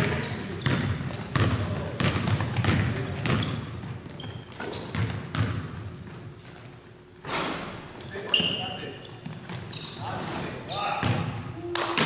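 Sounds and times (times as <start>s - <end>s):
sneaker squeaks: 0.0s - 11.7s
basketball bouncing on hardwood floor: 0.6s - 5.9s, 11.0s - 11.3s.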